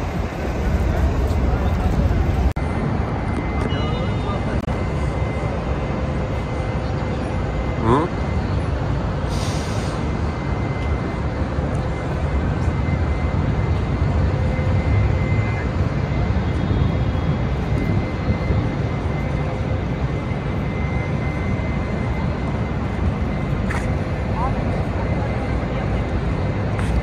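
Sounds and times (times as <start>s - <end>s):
city ambience rumble and hiss: 0.0s - 27.0s
faint steady high tone: 2.6s - 8.8s.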